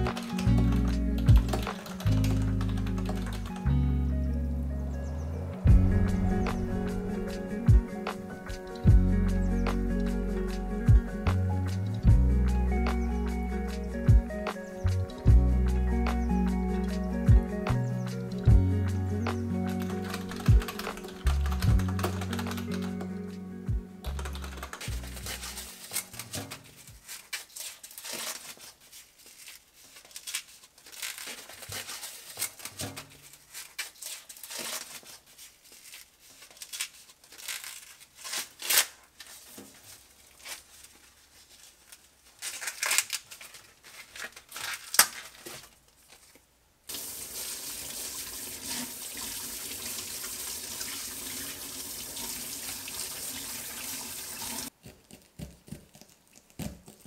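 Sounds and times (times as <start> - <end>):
corn husks tearing: 19.4 - 23.0, 24.1 - 47.1, 54.4 - 57.0
kitchen faucet running: 46.9 - 54.7.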